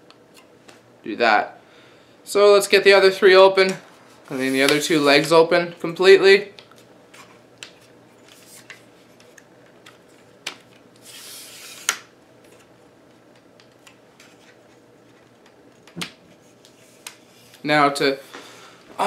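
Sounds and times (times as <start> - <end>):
tripod leg sliding and snapping: 11.0 - 12.6.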